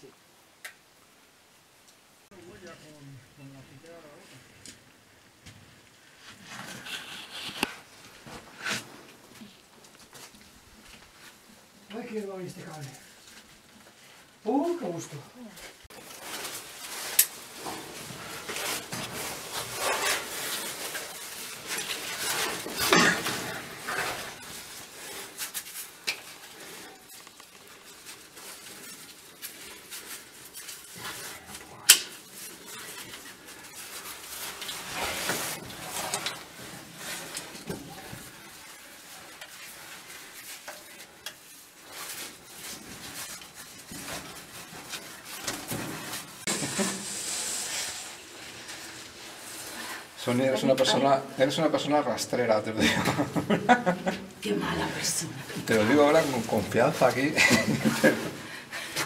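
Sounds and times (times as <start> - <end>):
rope rubbing on rock: 6.1 - 9.0, 16.0 - 50.4.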